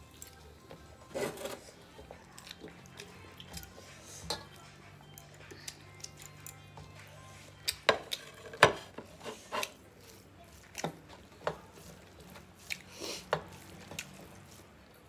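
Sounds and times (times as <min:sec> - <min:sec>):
wet chewing and eating clicks: 0:02.1 - 0:03.8, 0:05.0 - 0:07.0, 0:07.6 - 0:08.3, 0:10.5 - 0:15.0.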